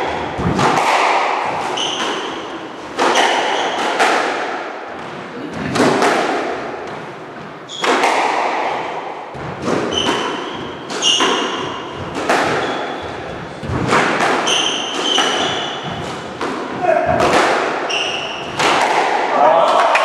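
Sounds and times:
shoes squeaking on wooden floor: 1.7 - 3.8, 9.6 - 16.4, 17.9 - 18.6
squash ball knocks: 7.8 - 20.0.

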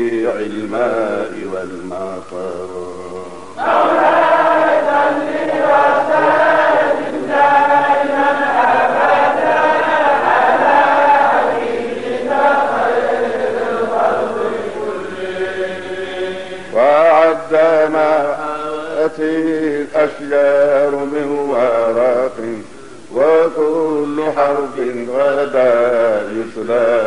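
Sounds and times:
group chanting in unison: 3.5 - 17.7.

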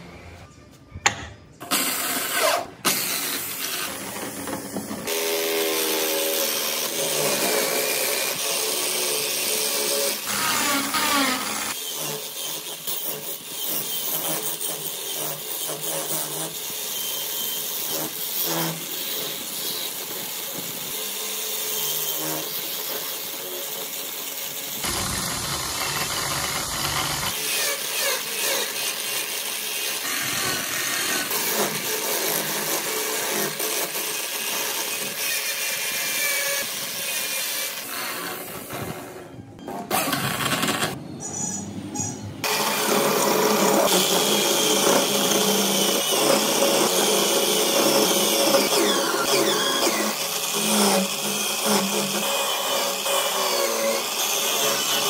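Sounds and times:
chisel cutting spinning wood: 17.0 - 38.7, 42.4 - 55.0
electric drill running: 24.2 - 27.4.

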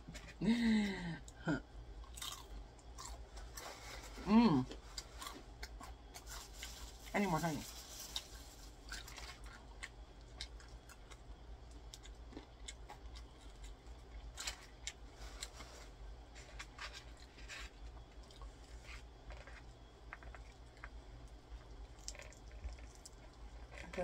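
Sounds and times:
plastic packet crinkling: 6.2 - 9.5
chewing with wet mouth clicks: 8.9 - 15.0, 20.1 - 23.8.

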